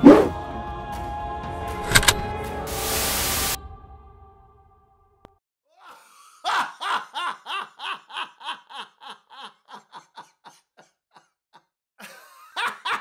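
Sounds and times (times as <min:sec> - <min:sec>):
man laughing hard: 0:05.7 - 0:13.0.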